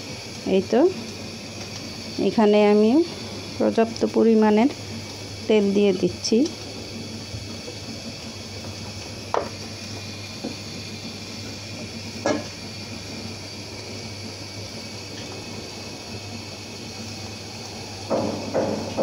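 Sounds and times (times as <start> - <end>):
stove burner hissing: 0.0 - 19.0
sharp knocks: 18.1 - 19.0.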